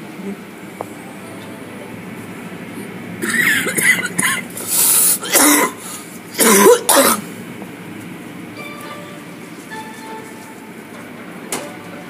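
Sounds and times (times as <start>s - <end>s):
car wash machinery rumble: 0.0s - 12.0s
person coughing: 3.2s - 4.5s, 5.2s - 5.8s, 6.4s - 7.3s.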